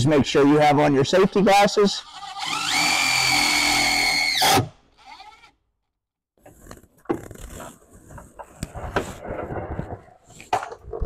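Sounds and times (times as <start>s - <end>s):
power drill whining: 2.0s - 5.6s.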